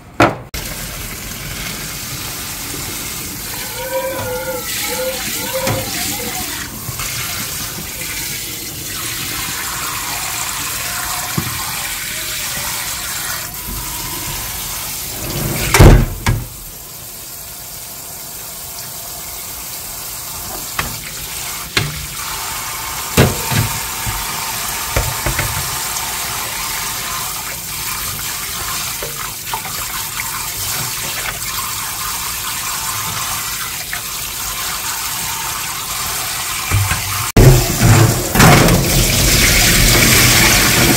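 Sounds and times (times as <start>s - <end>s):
water splashing in pan: 0.6s - 13.5s, 20.4s - 40.9s
tap running into metal sink: 3.5s - 6.3s, 11.3s - 11.7s, 20.5s - 21.1s, 21.7s - 22.2s, 23.1s - 25.9s, 36.7s - 40.9s
cookware clanking against sink: 24.9s - 25.8s, 36.7s - 39.1s.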